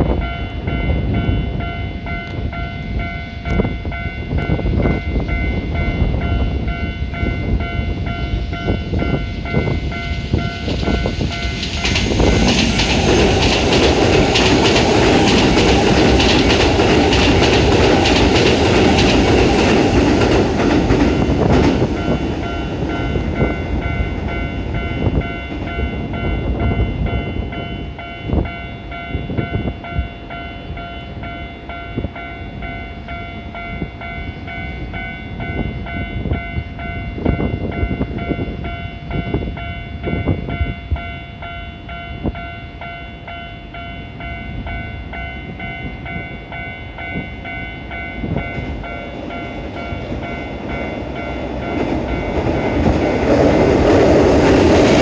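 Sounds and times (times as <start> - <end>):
electric train passing: 0.0 - 55.0
level-crossing alarm bell: 0.0 - 55.0
wheels clacking over rail joints: 10.6 - 23.4.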